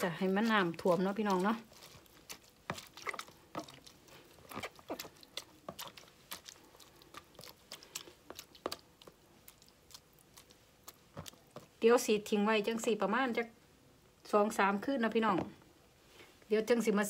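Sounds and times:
hands squishing wet vegetables: 0.0s - 13.0s.

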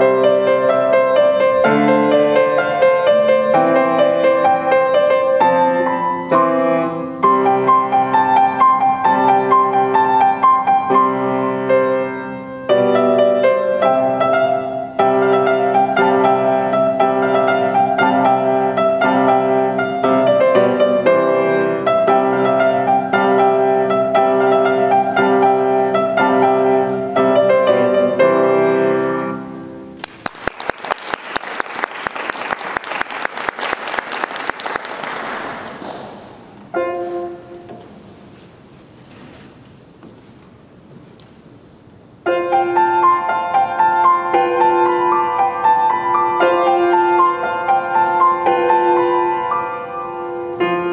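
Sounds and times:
grand piano playing: 0.0s - 30.4s, 31.6s - 38.7s, 42.1s - 50.9s
audience applause: 30.0s - 36.5s.

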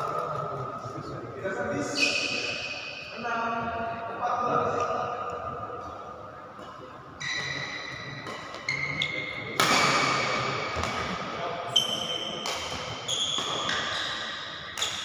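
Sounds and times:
shoes squeaking on floor: 1.8s - 2.5s, 7.2s - 9.4s, 11.7s - 15.0s
racket hitting shuttlecock: 7.5s - 11.2s, 12.4s - 13.9s, 14.7s - 15.0s.

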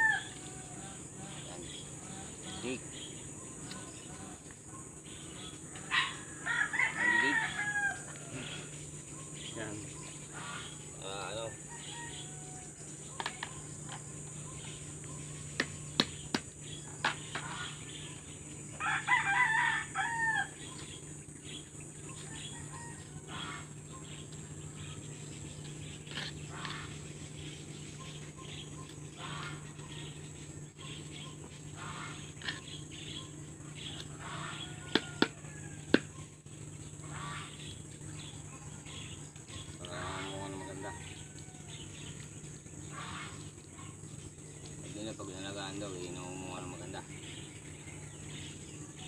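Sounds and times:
rooster crowing: 0.0s - 1.4s, 5.7s - 8.8s, 11.1s - 13.2s, 18.7s - 20.7s, 22.2s - 23.8s, 33.9s - 36.2s, 39.8s - 42.1s.

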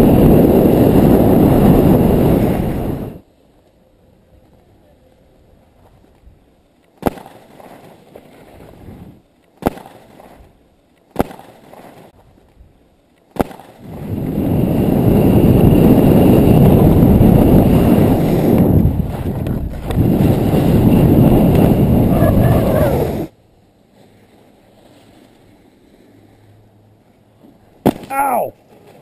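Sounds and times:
wind buffeting microphone: 0.0s - 3.2s, 13.8s - 23.4s.

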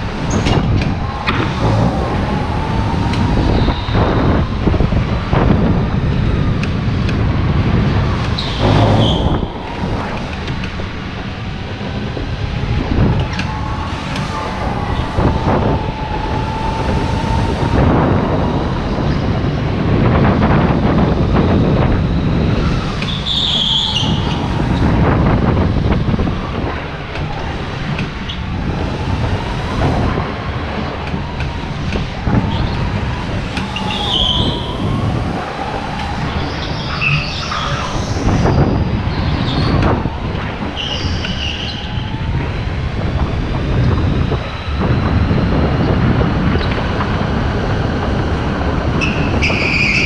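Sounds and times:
go-kart engine rumble and whine: 0.0s - 50.0s.

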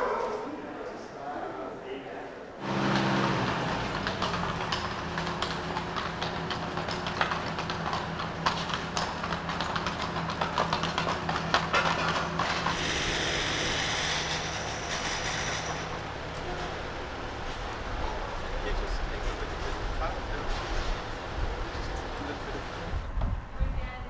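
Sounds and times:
wagon rattling: 2.6s - 12.8s
hooves clip-clopping on cobblestones: 2.6s - 23.4s.

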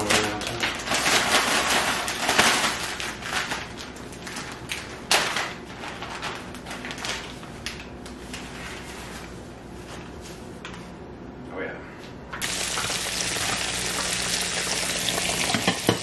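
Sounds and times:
plastic bag crinkling and rustling: 0.0s - 9.4s.

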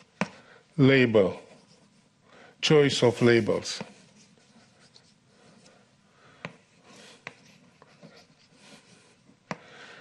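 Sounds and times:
chalk scratching on blackboard: 1.4s - 2.1s, 3.8s - 5.7s, 6.5s - 9.2s.

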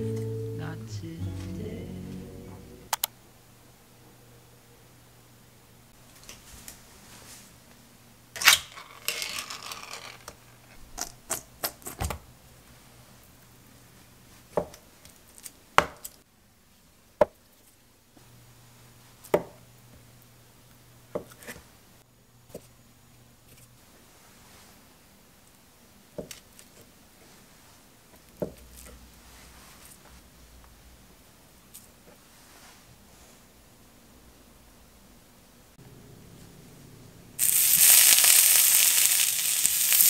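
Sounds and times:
sharp click: 2.9s - 3.1s.

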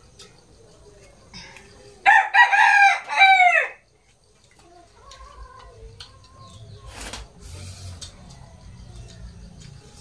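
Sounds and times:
rooster crowing: 2.0s - 3.8s.

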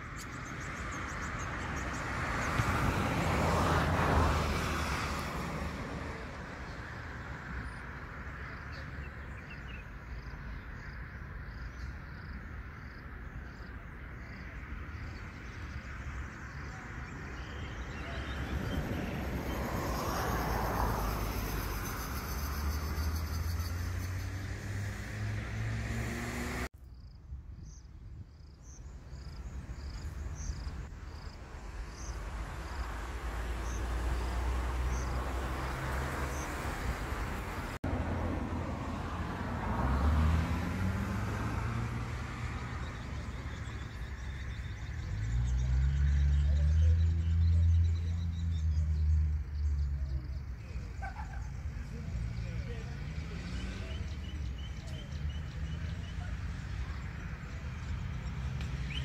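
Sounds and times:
outdoor background noise: 0.0s - 59.0s
vehicle engine humming: 18.1s - 26.7s.

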